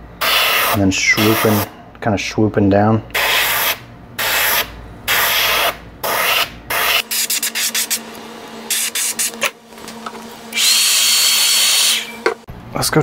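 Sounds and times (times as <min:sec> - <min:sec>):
airbrush hissing in bursts: 0:00.2 - 0:01.7, 0:03.2 - 0:08.0, 0:08.7 - 0:09.4.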